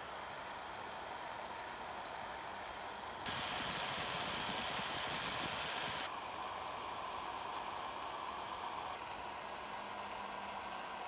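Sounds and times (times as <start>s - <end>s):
sandpaper hissing on turning part: 3.3s - 6.1s.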